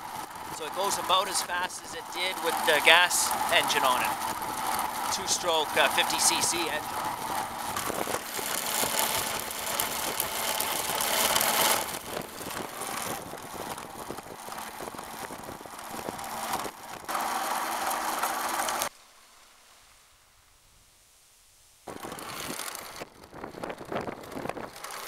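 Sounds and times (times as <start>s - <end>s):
electric moped rushing noise: 0.0s - 18.9s, 21.9s - 25.0s
rattling: 0.0s - 18.9s.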